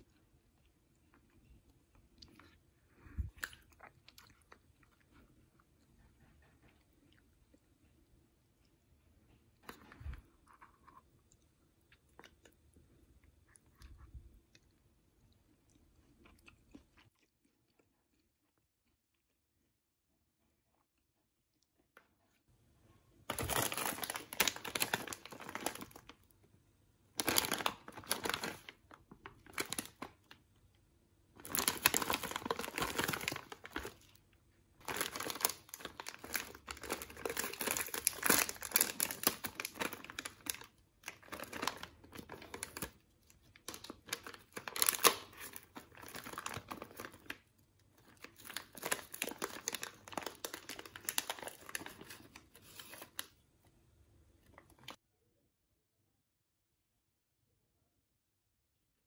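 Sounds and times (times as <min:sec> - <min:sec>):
plastic packet crinkling: 0:23.3 - 0:26.2, 0:27.2 - 0:30.4, 0:31.4 - 0:34.2, 0:34.8 - 0:53.3.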